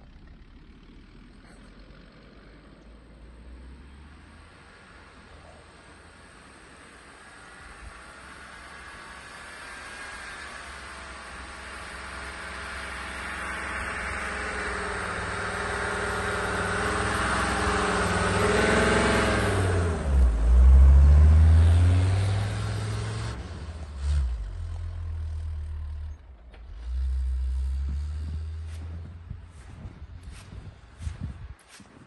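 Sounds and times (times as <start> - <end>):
diesel vehicle driving past: 0.0 - 32.0.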